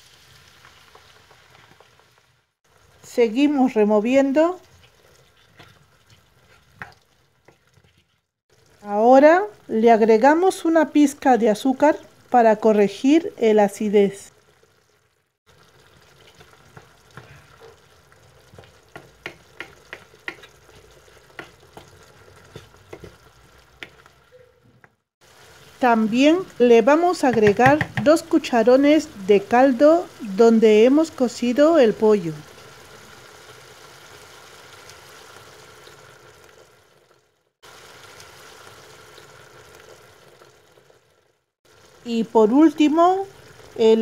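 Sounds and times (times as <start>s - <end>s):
low steady sizzle: 0.0s - 44.0s
spatula scraping a pan: 4.6s - 8.3s.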